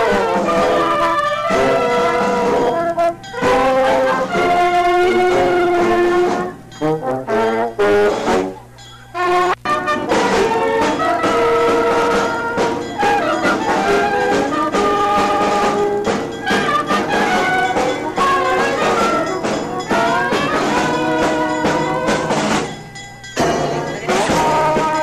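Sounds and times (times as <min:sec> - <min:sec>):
marching brass band playing: 0:00.0 - 0:25.0
bass drum beats: 0:09.6 - 0:25.0.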